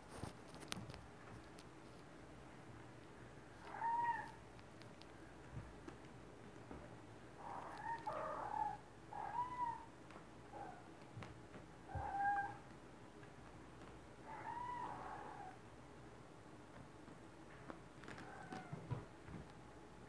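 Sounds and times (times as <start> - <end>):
kittens meowing: 3.6 - 4.4, 7.4 - 9.9, 11.9 - 12.6, 14.3 - 15.6.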